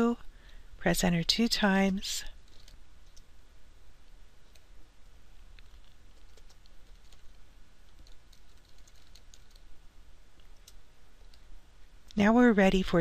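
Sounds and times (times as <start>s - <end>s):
computer keyboard typing: 2.5s - 3.3s, 5.6s - 9.7s.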